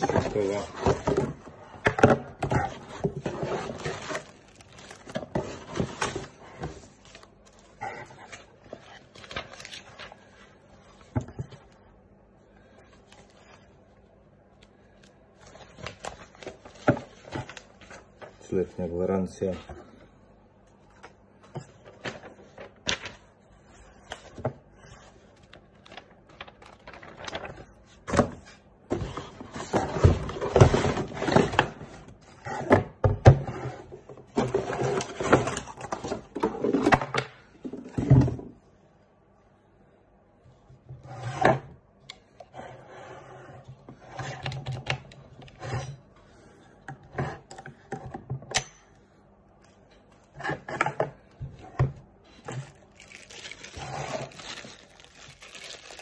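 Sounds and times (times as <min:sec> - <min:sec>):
cardboard and paper rustling: 0:00.0 - 0:11.8, 0:15.4 - 0:18.7, 0:21.0 - 0:33.4, 0:50.0 - 0:56.0.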